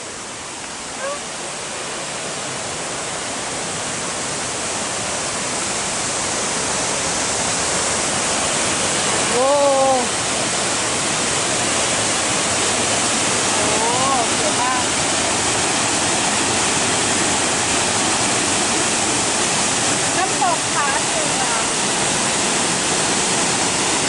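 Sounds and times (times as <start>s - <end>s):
waterfall rushing: 0.0s - 24.0s
person exclaiming: 9.3s - 10.1s.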